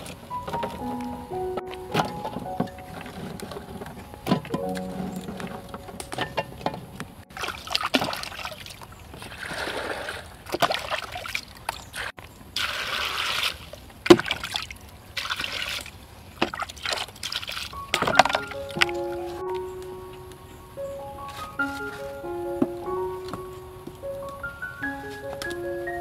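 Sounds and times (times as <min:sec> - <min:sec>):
water pouring and splashing: 0:01.6 - 0:19.6.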